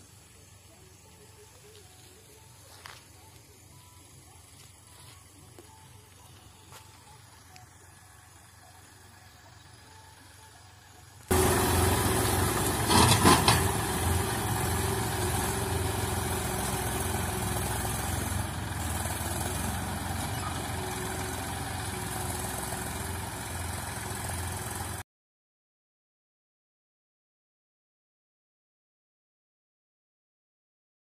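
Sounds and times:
tractor diesel engine running: 0.0 - 25.0.

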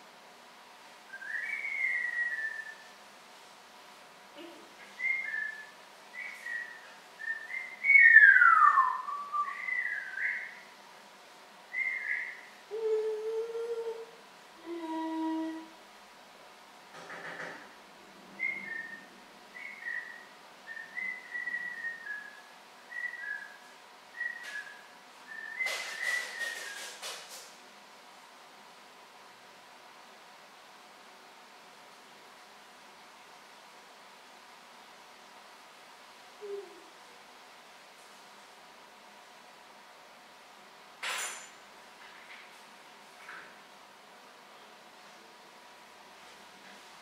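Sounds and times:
parrot whistling: 19.6 - 23.6.

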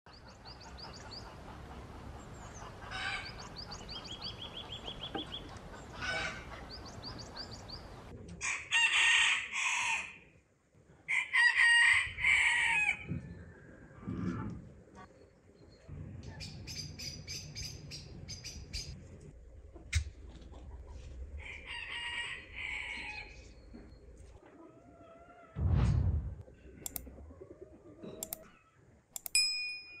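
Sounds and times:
small birds chirping: 0.1 - 8.1, 15.0 - 19.0
rooster crowing: 21.4 - 23.5.

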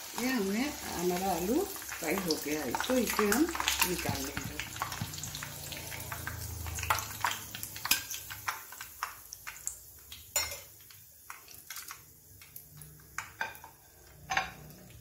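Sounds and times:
hot oil crackling and popping: 0.0 - 15.0
metal spoon clinking on pan: 10.3 - 10.7.

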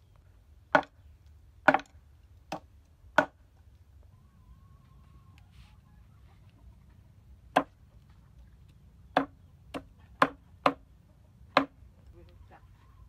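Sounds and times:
cleaver chopping on wooden board: 0.7 - 0.9, 1.6 - 1.9, 2.5 - 3.4, 9.1 - 10.8, 11.5 - 11.8.

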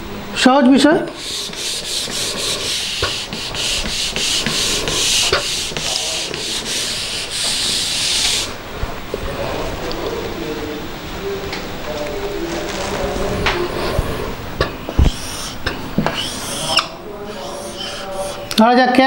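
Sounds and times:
duster rubbing on whiteboard: 1.1 - 8.6, 13.0 - 18.5.

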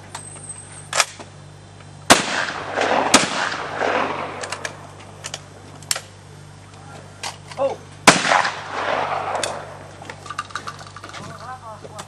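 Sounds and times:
shotgun shots with echo: 2.1 - 4.7, 8.1 - 9.8.

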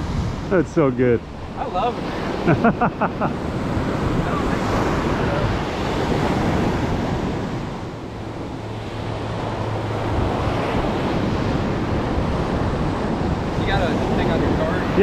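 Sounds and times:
ocean surf breaking: 0.0 - 15.0
wind on microphone: 0.0 - 15.0.

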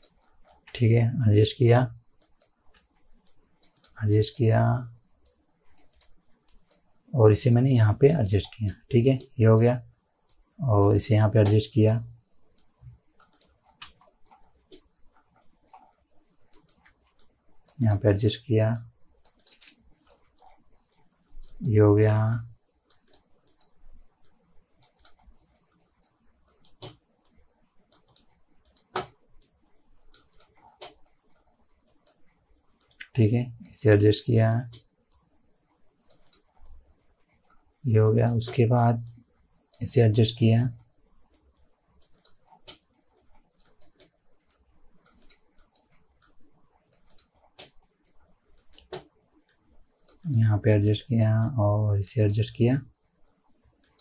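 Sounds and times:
mouse and keyboard clicking: 0.0 - 0.8, 2.1 - 4.4, 5.2 - 6.9, 8.1 - 18.1, 18.7 - 21.8, 22.8 - 35.3, 36.0 - 37.6, 40.6 - 51.6, 53.8 - 54.0.

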